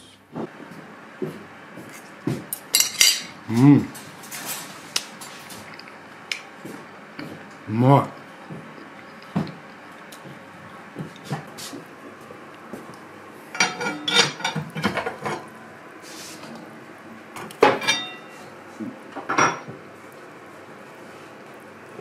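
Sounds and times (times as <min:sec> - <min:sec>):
ringing clanks of metal on metal: 0:13.6 - 0:14.6, 0:17.8 - 0:18.4
metal pan clattering in stove: 0:17.7 - 0:18.3.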